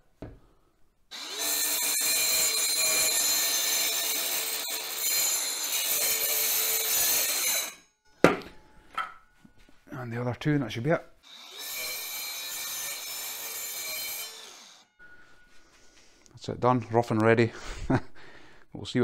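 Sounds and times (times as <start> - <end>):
circular saw cutting: 1.1 - 7.8, 11.2 - 15.1.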